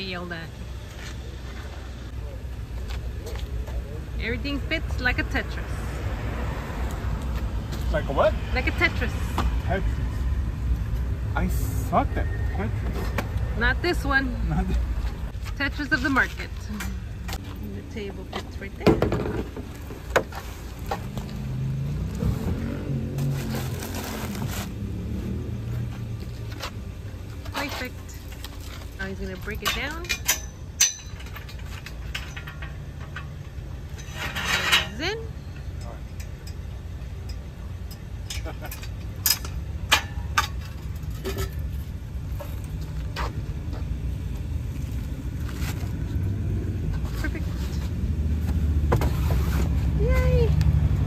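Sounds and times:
vehicle engine humming: 0.0 - 51.0
metal hand truck clanking: 29.2 - 41.8.

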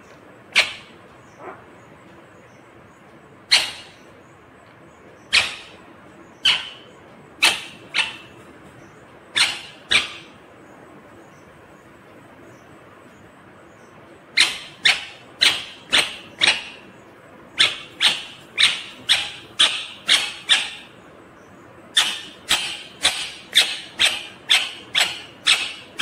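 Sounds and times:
parakeet high-pitched calls: 0.5 - 1.9, 3.5 - 4.2, 5.2 - 10.4, 14.3 - 26.0.

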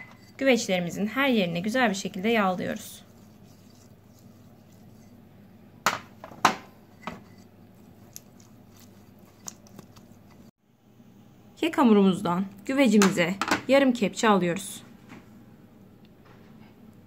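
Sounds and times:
soft brushing: 1.5 - 5.3, 6.8 - 10.5.

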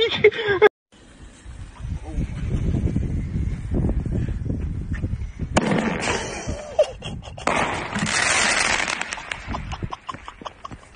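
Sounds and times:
firework bang: 5.5 - 6.6, 7.4 - 9.5
firework crack: 5.6 - 6.7, 7.4 - 10.4
firework crackling: 7.4 - 9.9
firework hiss: 7.5 - 9.5.

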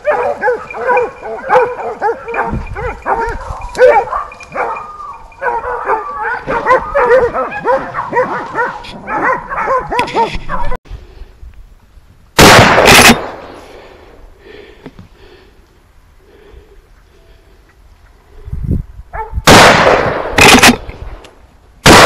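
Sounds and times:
dogs baying and yelping: 0.0 - 10.8, 19.1 - 19.4
loud shotgun blast: 12.4 - 13.6, 19.4 - 21.0.

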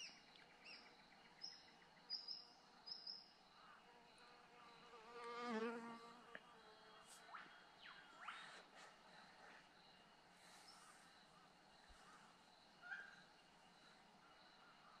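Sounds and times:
faint high bird chirps: 0.0 - 3.3, 7.2 - 8.9, 12.8 - 13.3
fly buzzing past: 4.5 - 7.3.

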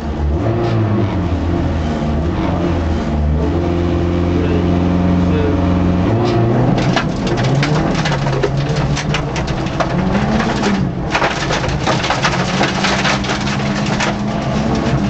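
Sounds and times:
rally car engine running hard: 0.0 - 15.0
dense crackling clatter: 6.2 - 15.0.

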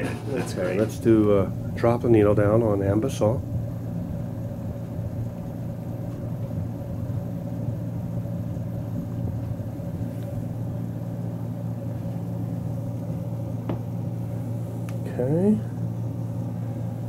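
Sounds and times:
low room hum and rumble: 0.0 - 17.0.

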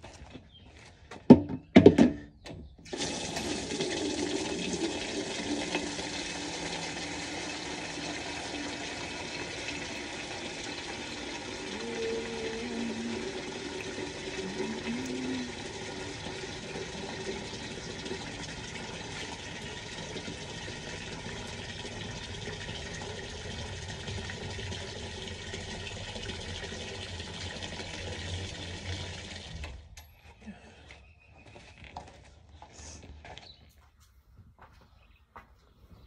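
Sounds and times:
water filling plastic bucket: 2.9 - 29.9.

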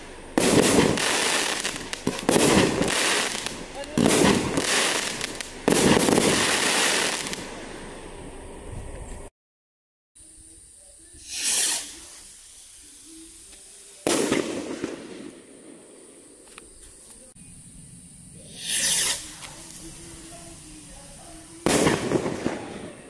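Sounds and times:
firework bang: 0.0 - 7.6, 14.0 - 16.0, 21.6 - 23.0
firework rocket whoosh: 0.0 - 8.6, 11.2 - 15.6, 18.3 - 23.0.

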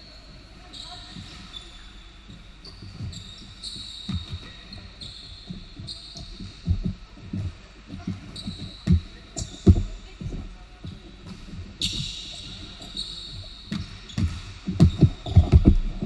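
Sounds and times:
sneakers squeaking: 0.0 - 16.0
basketball bouncing: 13.7 - 16.0.

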